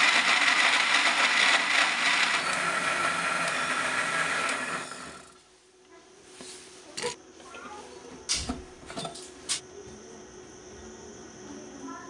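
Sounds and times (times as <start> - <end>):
mixer grinder grinding: 0.0 - 5.5.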